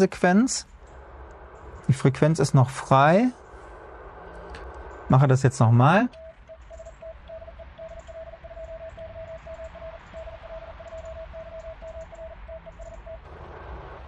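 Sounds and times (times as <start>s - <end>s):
low hum: 0.0s - 14.0s
morse code tone: 5.0s - 13.3s.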